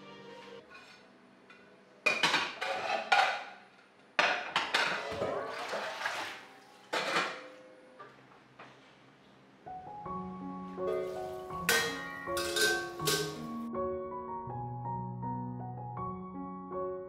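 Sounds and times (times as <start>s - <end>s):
metal pots clanking: 4.2s - 5.7s, 6.9s - 7.6s, 10.8s - 13.6s.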